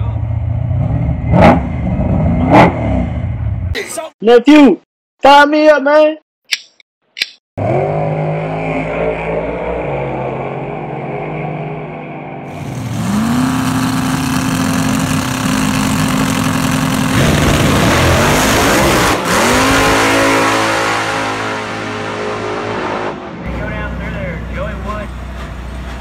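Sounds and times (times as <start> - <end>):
drag racing engine revving: 7.6 - 11.6, 12.5 - 26.0.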